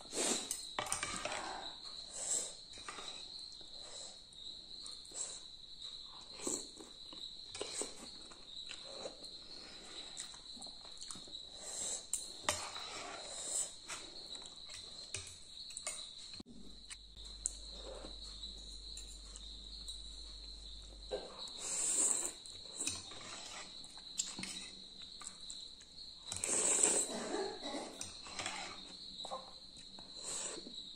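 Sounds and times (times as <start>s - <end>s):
noodles slurped and chewed: 26.4s - 27.2s.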